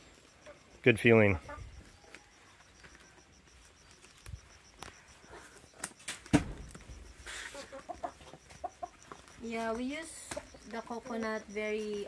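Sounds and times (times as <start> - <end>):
coconut landing with thud: 6.1 - 6.8.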